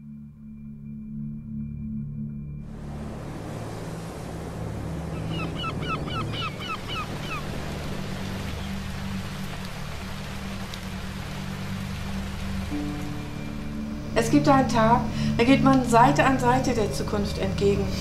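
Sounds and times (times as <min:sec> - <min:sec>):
soft background music: 0:00.0 - 0:18.0
water rushing: 0:02.6 - 0:18.0
bird short rising calls: 0:05.1 - 0:08.8.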